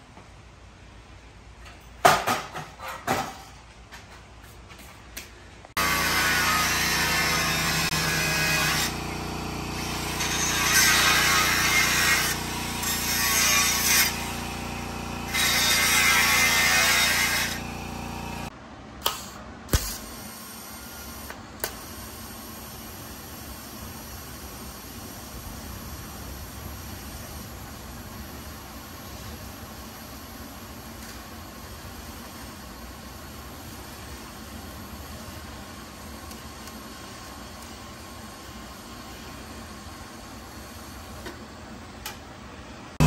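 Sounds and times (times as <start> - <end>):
angle grinder cutting steel: 5.8 - 18.5.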